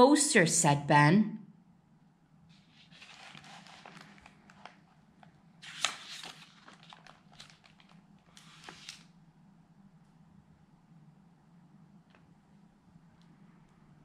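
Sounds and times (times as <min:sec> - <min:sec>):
paper page turning: 0:02.5 - 0:09.1.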